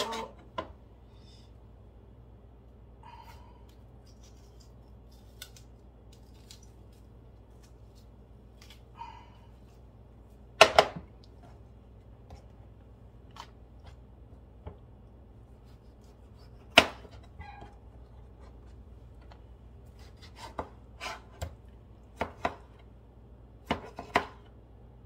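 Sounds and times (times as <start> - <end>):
knife slicing tomatoes: 15.5 - 17.3, 19.9 - 22.8, 23.6 - 24.4.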